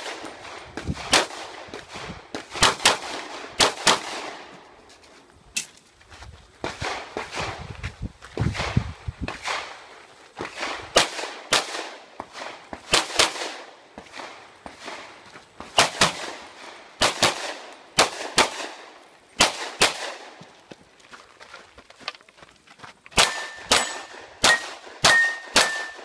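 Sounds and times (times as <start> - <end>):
pistol shots: 0.0 - 4.5, 10.4 - 15.1, 15.7 - 20.4, 23.2 - 26.0.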